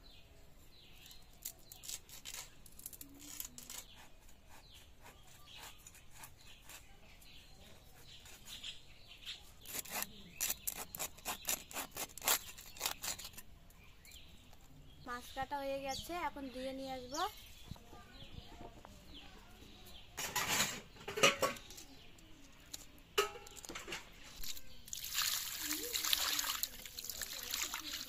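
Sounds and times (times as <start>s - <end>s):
knife cutting and scraping fish: 1.0s - 8.8s, 9.4s - 13.5s.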